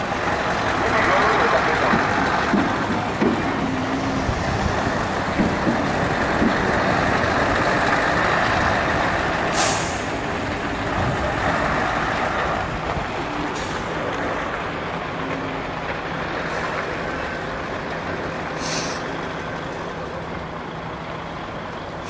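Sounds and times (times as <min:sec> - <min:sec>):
heavy vehicle running: 0:00.0 - 0:22.0
air release hiss: 0:09.5 - 0:10.1, 0:18.6 - 0:19.0.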